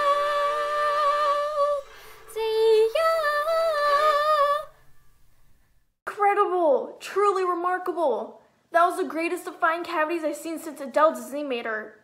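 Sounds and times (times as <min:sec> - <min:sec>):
person singing sustained notes: 0:00.0 - 0:04.8.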